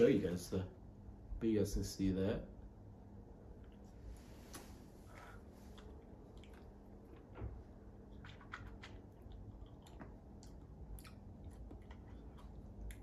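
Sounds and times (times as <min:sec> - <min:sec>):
wet lip smacks and tongue clicks: 0:05.6 - 0:13.0.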